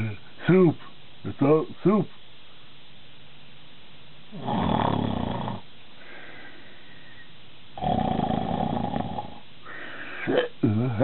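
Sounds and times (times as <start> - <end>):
man snoring: 4.3 - 5.6, 7.8 - 9.4.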